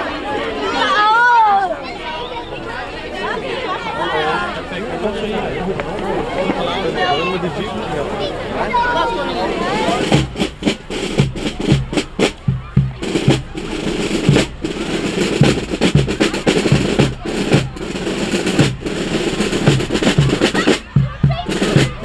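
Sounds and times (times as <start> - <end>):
snare drum strokes and rolls: 9.5 - 22.0
bass drum beat: 10.0 - 22.0.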